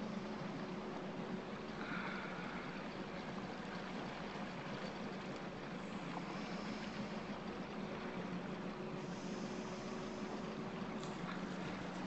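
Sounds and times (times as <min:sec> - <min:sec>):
boat motor humming: 0:00.0 - 0:12.0
wind: 0:00.0 - 0:12.0
water hiss: 0:09.0 - 0:12.0.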